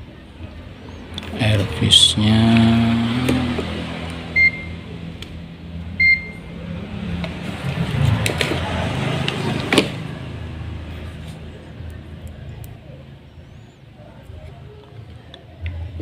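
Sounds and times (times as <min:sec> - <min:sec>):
multimeter beeping: 0:04.4 - 0:04.8, 0:06.0 - 0:06.4.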